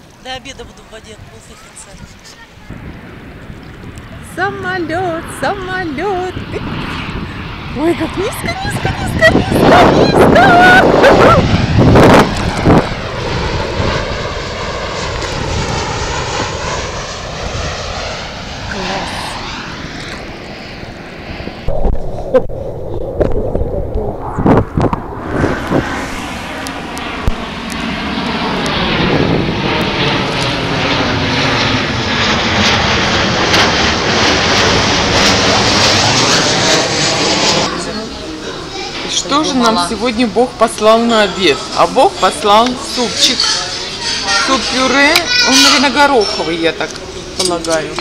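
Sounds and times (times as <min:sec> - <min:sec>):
airliner engine noise overhead: 0:00.0 - 0:48.0
faint gliding tones: 0:18.0 - 0:28.4.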